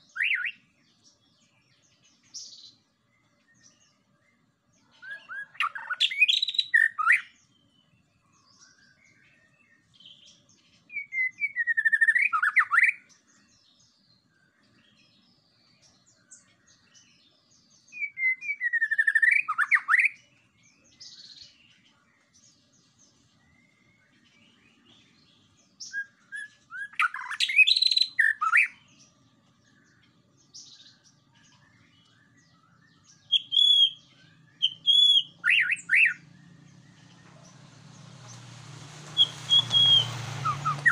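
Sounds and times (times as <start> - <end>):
bird singing whistled phrases: 0.0 - 0.6, 4.9 - 7.4, 10.9 - 13.0, 17.9 - 20.2, 25.8 - 28.9, 31.7 - 36.9, 39.0 - 40.9.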